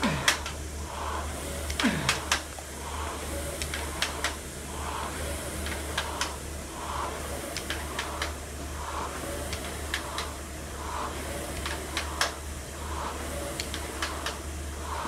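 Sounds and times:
rowing machine fan whooshing: 0:00.0 - 0:15.0
steady low hum: 0:00.0 - 0:15.0
rowing machine clicks: 0:01.6 - 0:02.6, 0:05.4 - 0:08.4, 0:09.5 - 0:15.0.

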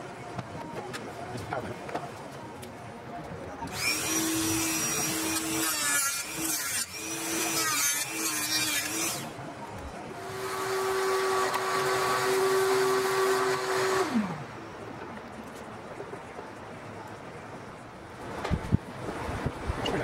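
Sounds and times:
rotary tool cutting plastic: 0:03.7 - 0:09.4.

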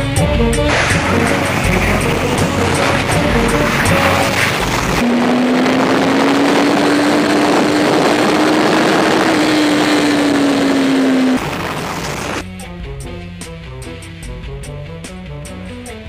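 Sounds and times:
motorcycle engine at high speed: 0:00.6 - 0:12.4
wind rushing over microphone: 0:00.9 - 0:12.4.

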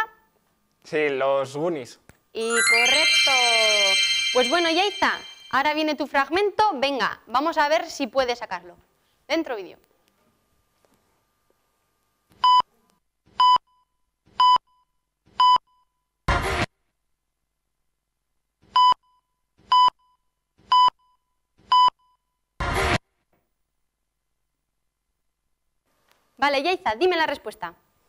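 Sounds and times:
short high electronic beeps: 0:02.4 - 0:05.8.

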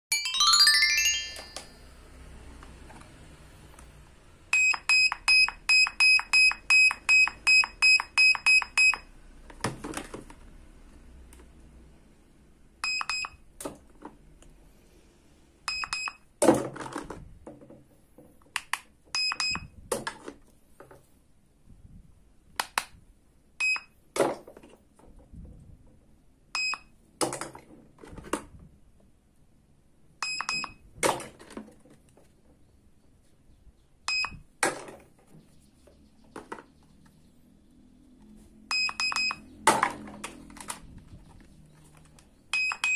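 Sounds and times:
toy cash register beeping: 0:04.6 - 0:09.0, 0:30.2 - 0:30.8, 0:42.6 - 0:42.9.

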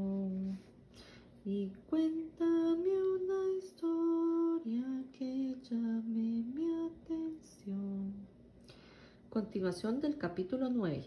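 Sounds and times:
woman singing unaccompanied: 0:00.0 - 0:00.8, 0:01.4 - 0:08.4.

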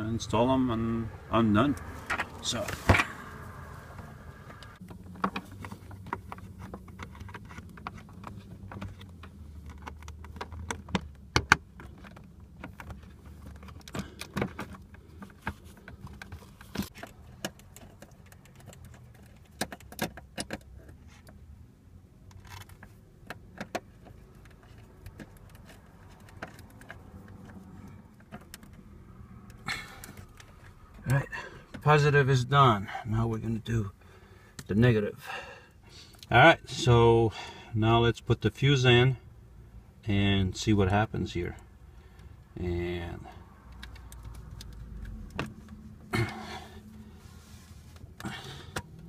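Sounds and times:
small metallic clicks and rattles: 0:04.8 - 0:21.4, 0:22.2 - 0:28.8.

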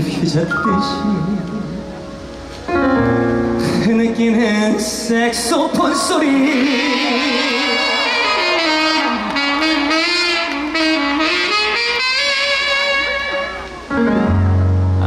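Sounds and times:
ballad band accompaniment: 0:00.0 - 0:15.0
saxophone melody: 0:06.1 - 0:15.0.

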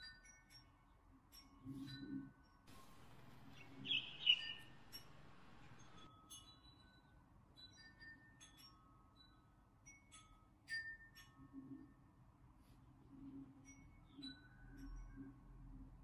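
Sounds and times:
soft chime-like music: 0:00.0 - 0:12.4, 0:13.5 - 0:15.7
faint hiss: 0:02.7 - 0:06.1.

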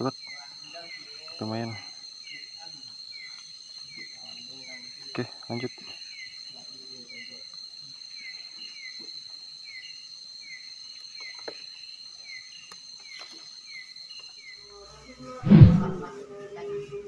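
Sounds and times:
cricket trill: 0:00.0 - 0:17.0
loud thump: 0:15.4 - 0:16.0.

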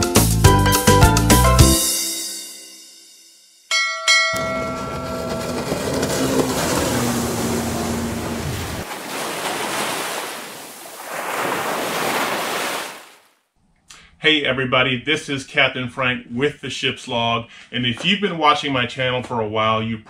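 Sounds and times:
bell chimes: 0:02.0 - 0:06.3
boat motor rumble: 0:04.4 - 0:09.2
rush of surf: 0:05.4 - 0:13.2.

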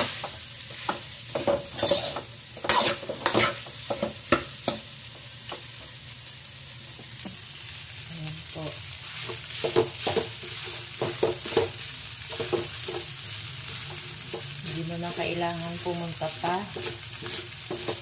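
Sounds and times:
rice sizzling in a wok: 0:00.0 - 0:18.0
metal ladle scraping a pan: 0:01.4 - 0:03.6.

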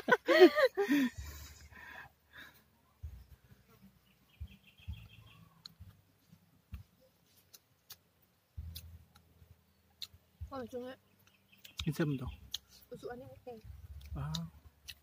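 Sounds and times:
faint bird trill: 0:04.0 - 0:05.9
chewing with mouth clicks: 0:10.0 - 0:10.2, 0:12.5 - 0:13.0, 0:13.6 - 0:15.0.

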